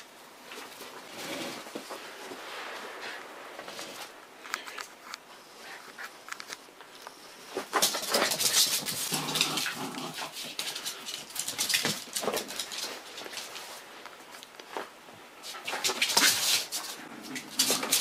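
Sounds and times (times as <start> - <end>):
small dogs playing: 6.9 - 13.9, 15.4 - 18.0.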